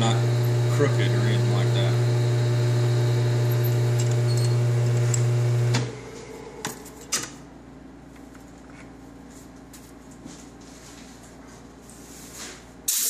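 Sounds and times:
metal lathe motor hum: 0.0s - 6.7s.

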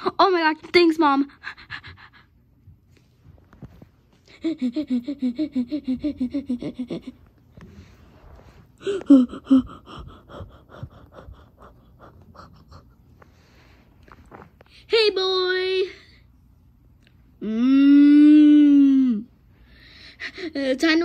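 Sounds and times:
person making trembling vocal pulses: 8.8s - 13.0s.

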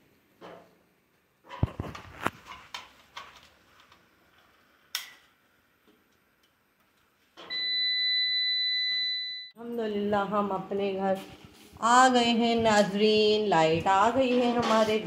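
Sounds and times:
long electronic beep: 7.5s - 9.6s.

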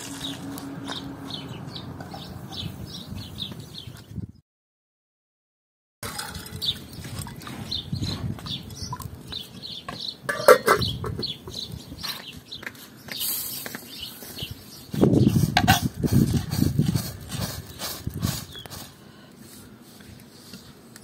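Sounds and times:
small birds chirping: 0.1s - 4.4s, 6.5s - 15.6s, 16.2s - 19.2s
chickens clucking: 10.3s - 11.7s.

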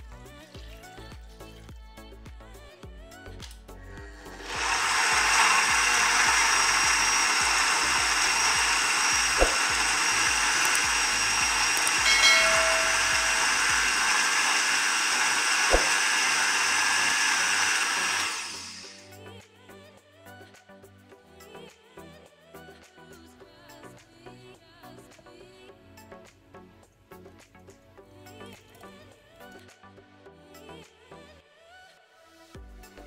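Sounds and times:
blender running: 3.9s - 19.0s.

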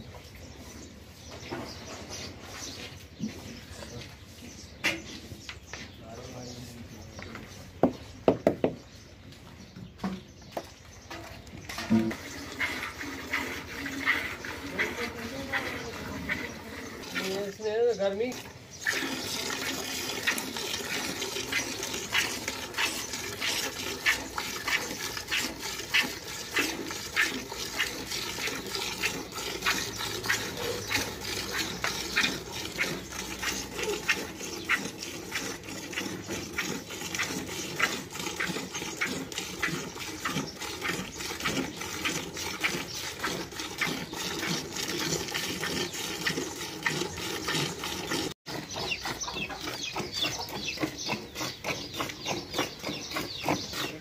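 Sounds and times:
milk squirting into metal bucket: 11.6s - 17.6s, 18.3s - 48.7s.

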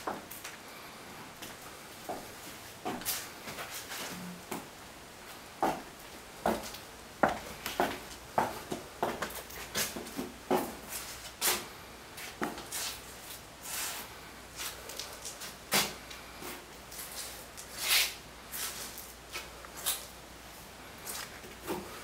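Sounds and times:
footsteps on tile floor: 0.0s - 0.6s, 1.4s - 4.7s, 5.3s - 22.0s.

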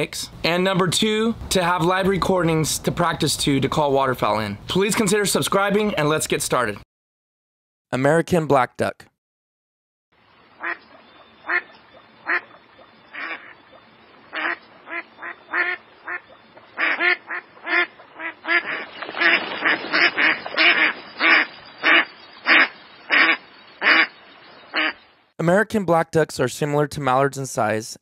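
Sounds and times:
duck quacking: 10.6s - 13.6s, 14.3s - 24.1s, 24.7s - 25.0s.

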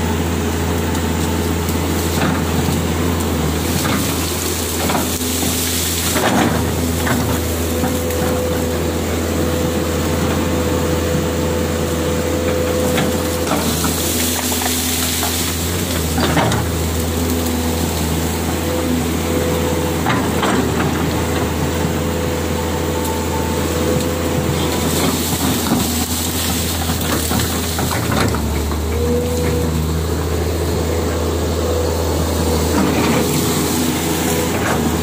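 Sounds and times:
excavator diesel engine running: 0.0s - 35.0s
sharp knocks and cracks: 24.0s - 29.6s.

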